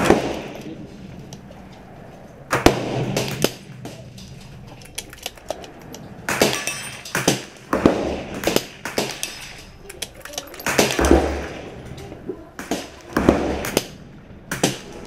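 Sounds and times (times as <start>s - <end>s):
gunshots with echo: 0.0s - 1.1s, 2.5s - 4.2s, 6.2s - 9.4s, 10.6s - 11.8s, 12.6s - 15.0s
metallic clicks: 3.2s - 7.5s, 8.9s - 11.1s.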